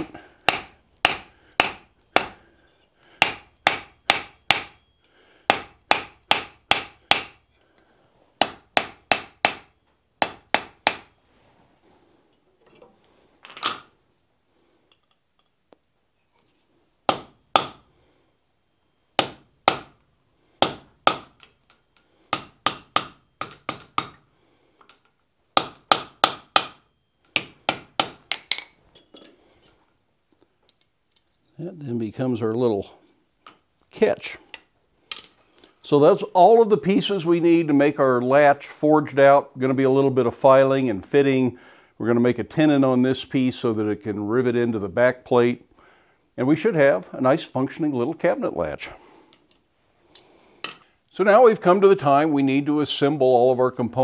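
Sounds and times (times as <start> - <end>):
hammer striking steel on anvil: 0.0 - 2.4, 3.2 - 4.9, 5.5 - 7.5, 8.4 - 11.2, 22.3 - 24.2, 25.6 - 29.4.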